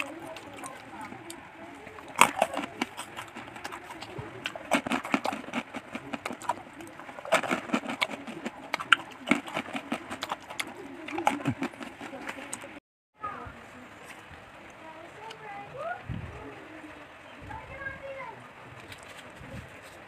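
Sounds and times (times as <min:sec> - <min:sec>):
crackers being crunched and chewed: 0:00.0 - 0:12.8, 0:18.8 - 0:20.0.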